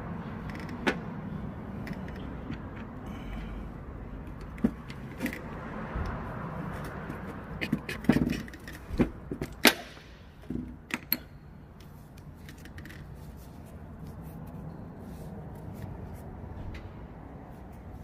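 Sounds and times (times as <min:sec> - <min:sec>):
metal parts clicking and knocking: 0:07.5 - 0:11.3.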